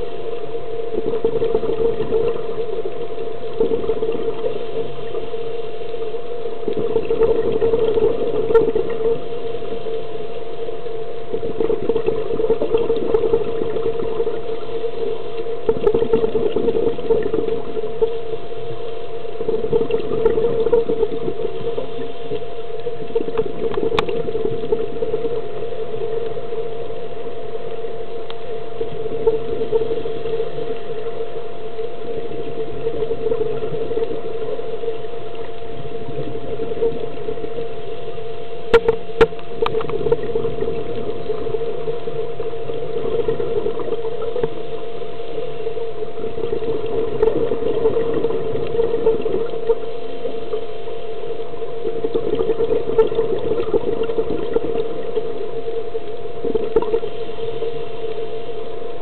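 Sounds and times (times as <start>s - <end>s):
underwater engine hum: 0.0s - 59.0s
water and bubble noise: 0.0s - 59.0s.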